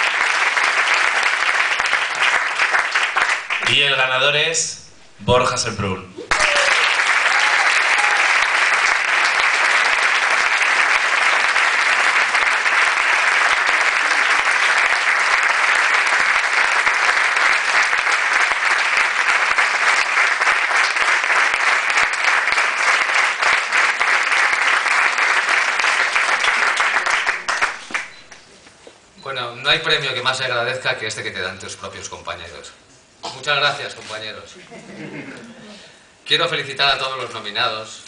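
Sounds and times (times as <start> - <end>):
audience applauding: 0.0 - 4.0, 6.3 - 28.4.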